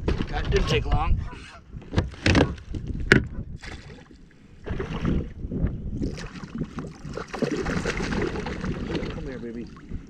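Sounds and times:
fish splashing beside kayak: 6.0s - 9.3s.

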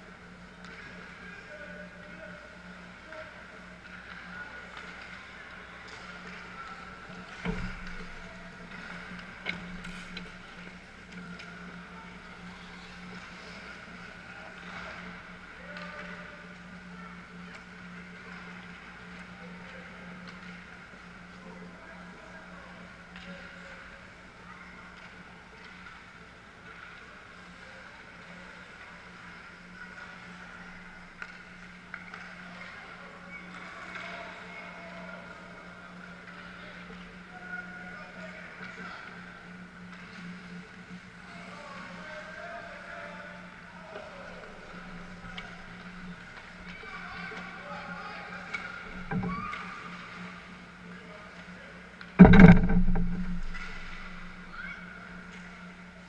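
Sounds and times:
sharp knocks: 49.0s - 49.4s, 52.2s - 54.4s
low hum: 52.0s - 56.0s
stick striking puck: 52.2s - 54.4s.

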